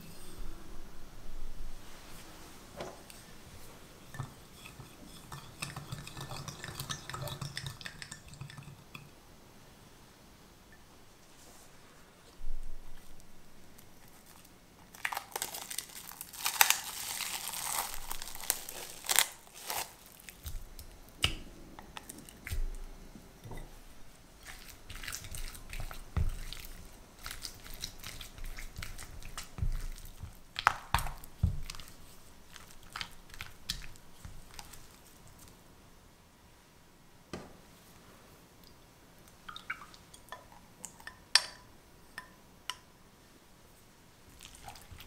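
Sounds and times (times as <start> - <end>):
spatula stirring thick cream: 4.0 - 9.1, 23.6 - 35.0
plastic cling film crinkling: 14.1 - 21.0, 24.4 - 35.6.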